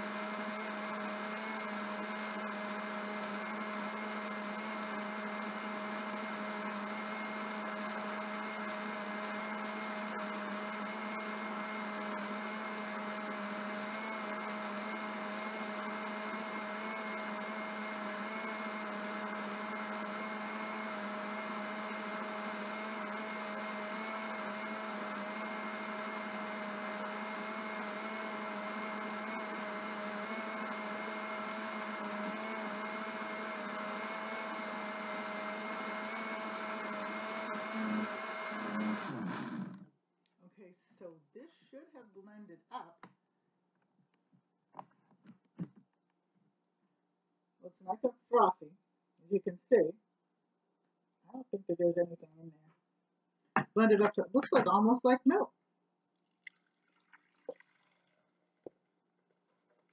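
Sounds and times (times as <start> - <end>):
electric blender running: 0.0 - 39.9.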